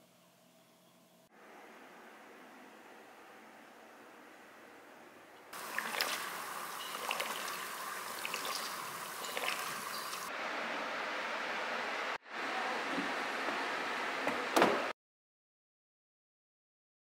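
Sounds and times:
small water drips: 5.6 - 10.3
water trickling and splashing in a tray: 5.6 - 10.3.

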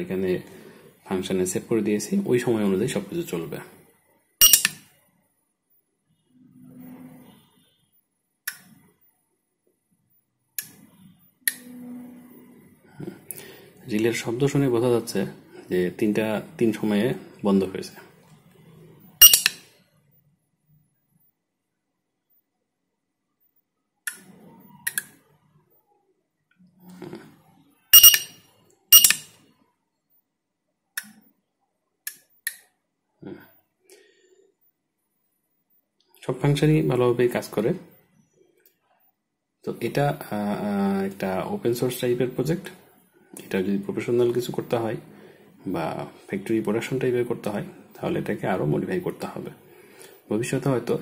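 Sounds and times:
faint low hum: 0.0 - 31.6
short electronic beeps: 4.4 - 4.7, 19.2 - 19.6, 27.9 - 29.3.

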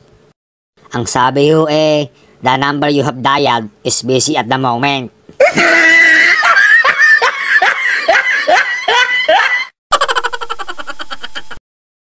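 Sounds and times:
high-pitched giggles: 5.4 - 11.6.

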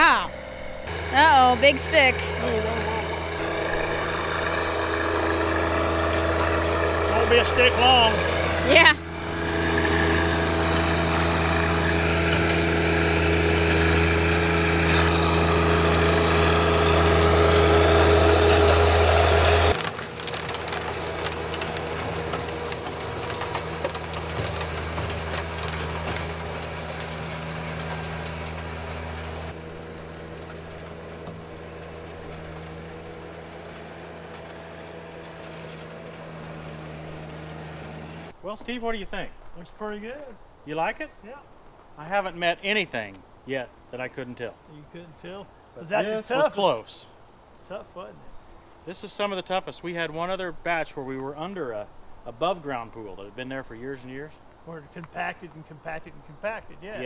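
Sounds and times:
rotary tiller churning soil: 0.0 - 38.4
tractor diesel engine running: 0.0 - 38.4.

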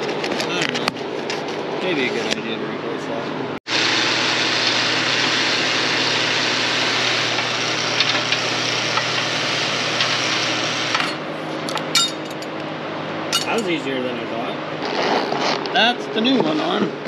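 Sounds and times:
electric chain hoist motor whirring: 3.7 - 12.4.

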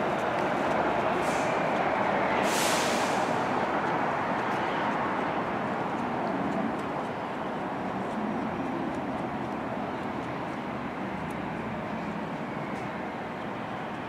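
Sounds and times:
subway train humming and whirring: 0.0 - 14.0
short hiss: 2.4 - 3.4.

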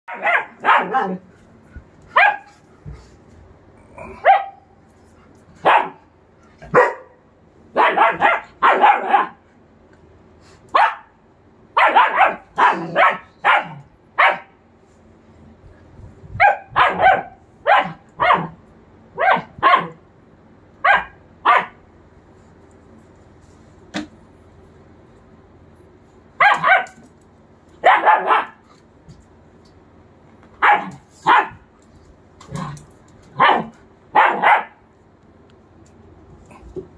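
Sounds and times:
dog barking: 0.1 - 1.2, 2.2 - 2.5, 4.2 - 4.6, 5.6 - 6.0, 6.7 - 7.2, 7.8 - 9.4, 10.8 - 11.1, 11.8 - 14.6, 16.4 - 18.6, 19.2 - 20.0, 20.8 - 21.8, 26.4 - 27.0, 27.8 - 28.6, 30.6 - 31.6, 33.4 - 34.8.

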